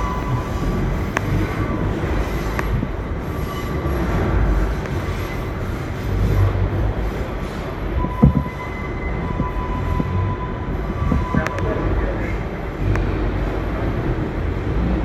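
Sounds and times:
subway train rumbling in tunnel: 0.0 - 15.0
thin wheel squeal: 3.2 - 4.2.

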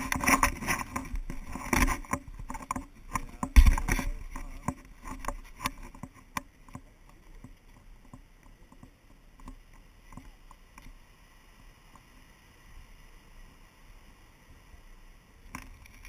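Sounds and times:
knocks and clicks: 1.7 - 6.5
heavy low thump: 3.6 - 4.1.

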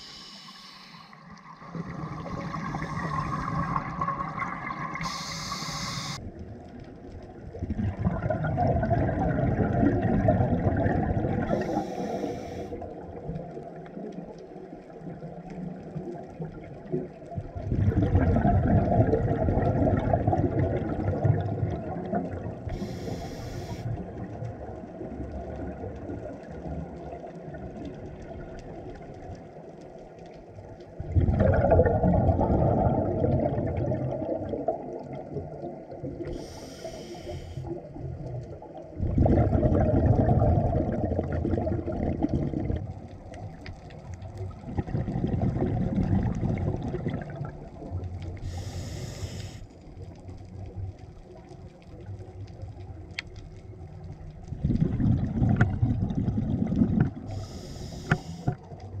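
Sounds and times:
regulator inhale hiss: 0.0 - 3.8, 5.0 - 6.2, 11.5 - 12.9, 22.7 - 24.0, 36.2 - 37.9, 48.4 - 49.8, 57.3 - 58.7
exhaled bubbles underwater: 0.0 - 59.0.

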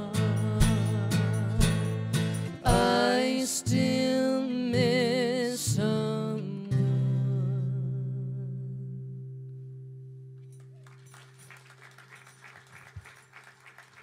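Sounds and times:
acoustic guitar chord ringing: 0.0 - 10.6
people clapping lightly: 10.6 - 14.0.

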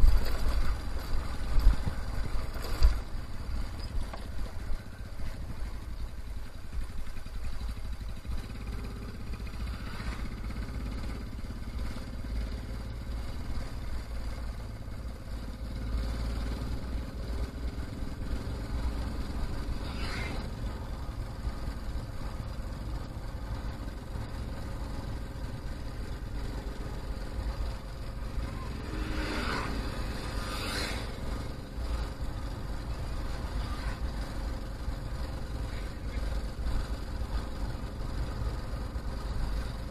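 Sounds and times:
wind noise: 0.0 - 3.2
motorcycle engine rumble: 0.0 - 39.9.

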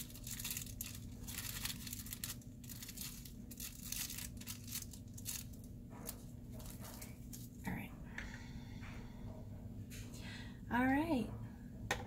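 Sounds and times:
plastic wrap crinkling: 0.0 - 7.7.

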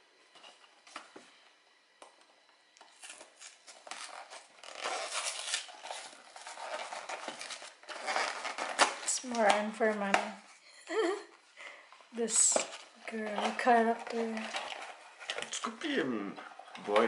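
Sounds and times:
cardboard rustling and scraping: 2.9 - 10.4, 12.2 - 17.0.

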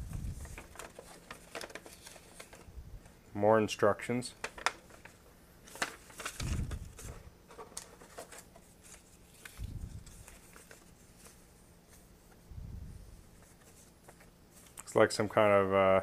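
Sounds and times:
paper rustling and crinkling: 0.0 - 2.7, 4.4 - 12.4, 13.3 - 14.8.

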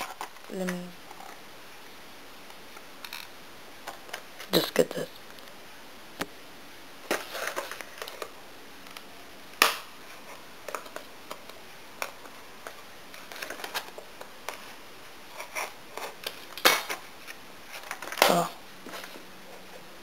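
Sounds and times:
plastic cracking: 7.0 - 14.7, 15.3 - 19.2.

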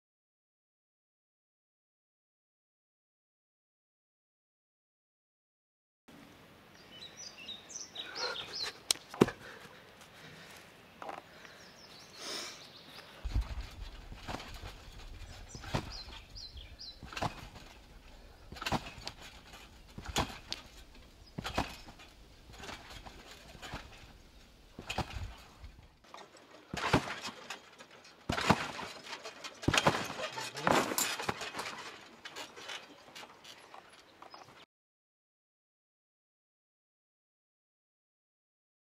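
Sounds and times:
small birds chirping: 6.2 - 26.2, 29.6 - 34.6
thuds of landing on trampoline: 13.2 - 24.2, 24.8 - 25.8, 26.7 - 33.3.

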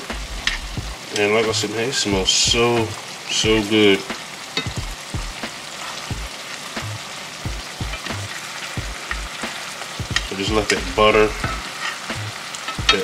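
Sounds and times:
meat sizzling in skillet: 0.0 - 13.0
metal tongs knocking pan: 10.1 - 12.0, 12.6 - 13.0.

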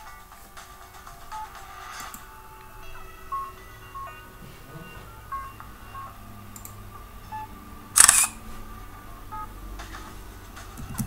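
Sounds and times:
camera shutter click: 8.0 - 8.4.

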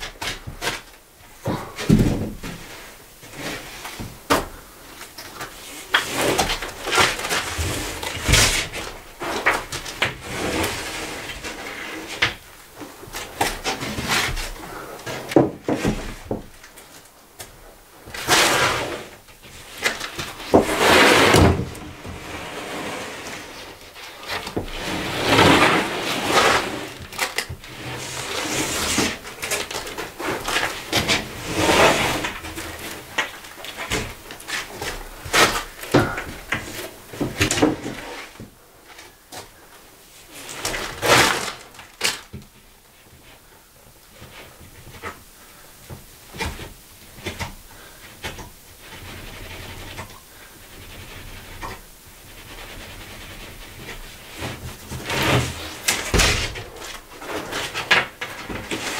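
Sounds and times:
boards knocking and thumping: 0.0 - 2.7, 12.2 - 16.6, 19.5 - 22.4, 24.3 - 38.6, 52.6 - 58.9
boards scraping over boards: 5.4 - 12.4, 18.0 - 38.5, 40.2 - 42.2, 44.2 - 58.9.

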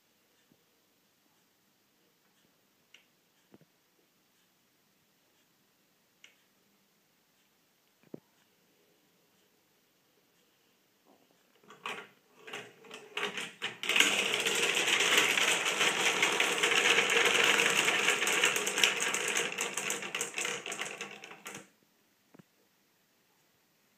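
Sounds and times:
glass marbles clattering down wooden tracks: 11.7 - 21.7.

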